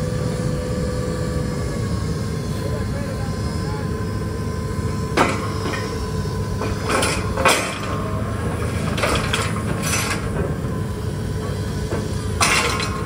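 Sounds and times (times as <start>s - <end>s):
drilling rig engine droning: 0.0s - 13.0s.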